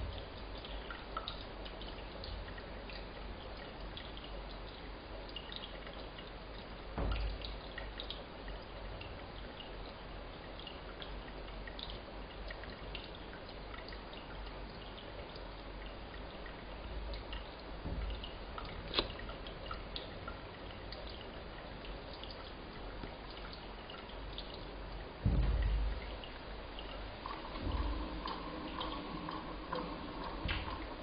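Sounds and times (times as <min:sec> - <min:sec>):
steady hiss: 0:00.0 - 0:31.0
water dripping: 0:00.0 - 0:31.0.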